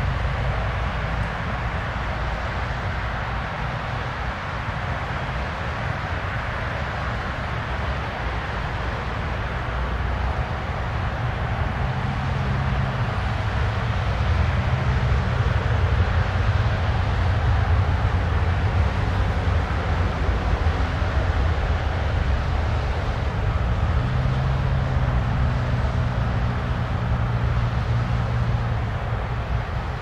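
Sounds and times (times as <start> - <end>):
jet engine roar: 7.1 - 30.0
deep engine rumble: 11.5 - 30.0.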